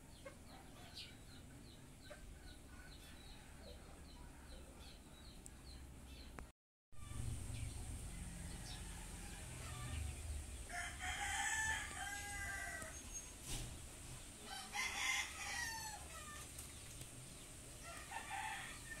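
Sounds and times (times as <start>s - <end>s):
rooster crowing: 7.0s - 13.2s, 14.4s - 16.4s, 17.8s - 19.0s.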